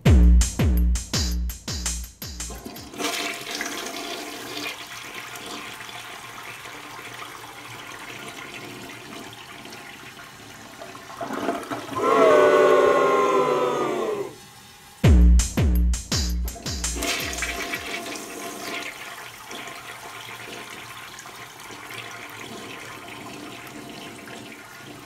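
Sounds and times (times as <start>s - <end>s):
toilet flushing: 2.5s - 15.0s, 16.9s - 25.0s
whistling rush: 12.0s - 14.4s.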